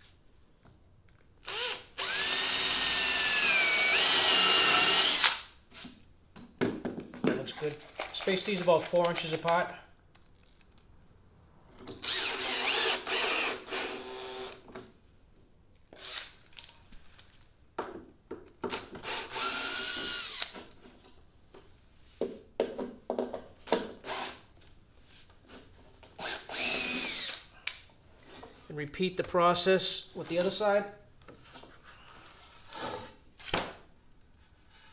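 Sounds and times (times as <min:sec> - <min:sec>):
cordless drill driving screws: 0:01.4 - 0:05.5, 0:12.0 - 0:14.6, 0:16.0 - 0:16.4, 0:18.7 - 0:20.7, 0:24.0 - 0:24.4, 0:26.2 - 0:27.5.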